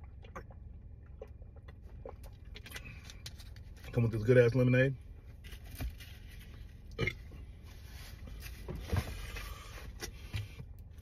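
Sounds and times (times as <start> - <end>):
man gulping a drink: 0.0 - 3.6.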